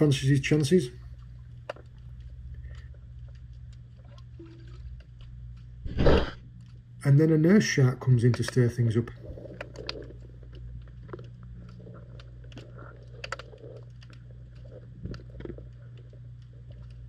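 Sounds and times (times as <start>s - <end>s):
underwater clicks and crackles: 0.0s - 7.0s, 8.0s - 17.0s
underwater low hum: 0.0s - 7.4s, 8.3s - 17.0s.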